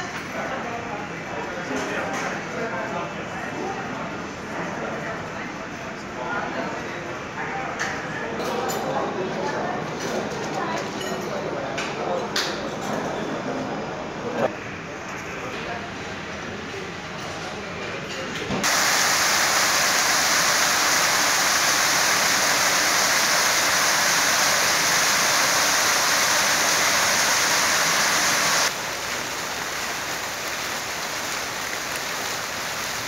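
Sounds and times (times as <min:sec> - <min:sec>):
fountain water splashing: 0:18.6 - 0:33.0
outdoor hiss: 0:18.6 - 0:33.0.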